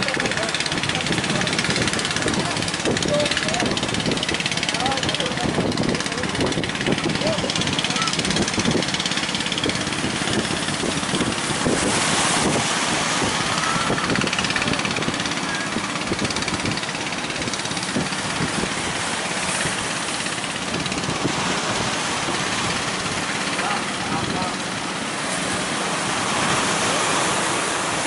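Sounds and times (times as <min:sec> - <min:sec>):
boat engines running: 0:00.0 - 0:28.0
breaking waves: 0:00.0 - 0:28.0
wind: 0:00.0 - 0:28.0.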